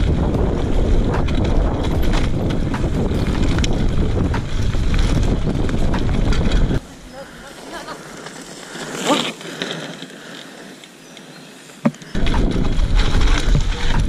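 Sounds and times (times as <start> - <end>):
bike clicks and rattles: 0.0 - 6.8, 7.6 - 14.0
wind rushing over microphone: 0.0 - 7.1, 12.1 - 14.0
bike tyres rumbling on dirt: 0.0 - 14.0.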